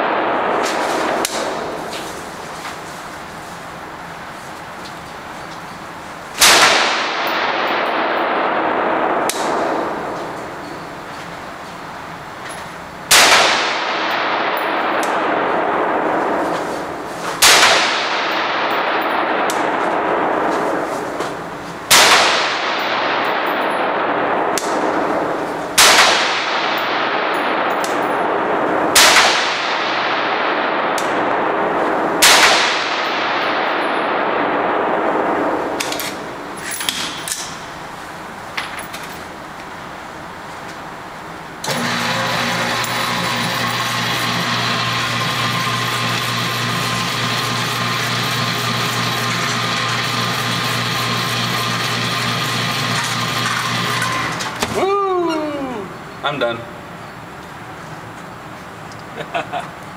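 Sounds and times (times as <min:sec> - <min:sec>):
rifle shots echoing indoors: 0:00.0 - 0:03.8, 0:06.3 - 0:12.1, 0:12.8 - 0:38.3.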